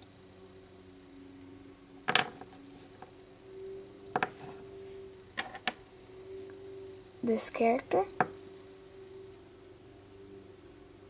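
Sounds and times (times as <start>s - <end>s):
faint steady hum: 0.0s - 11.0s
clay charms clicking on tabletop: 2.1s - 2.5s, 4.2s - 4.4s, 5.4s - 5.8s.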